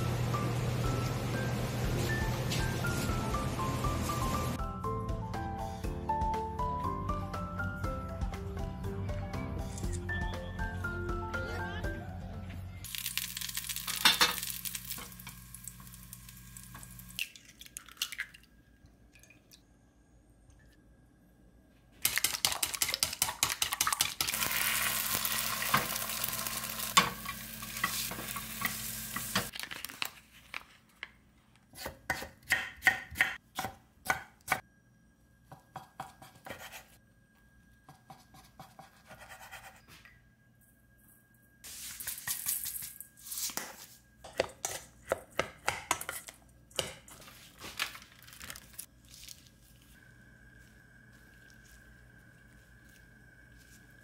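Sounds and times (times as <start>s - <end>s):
food sizzling in a pan: 12.9s - 17.2s, 24.3s - 29.5s.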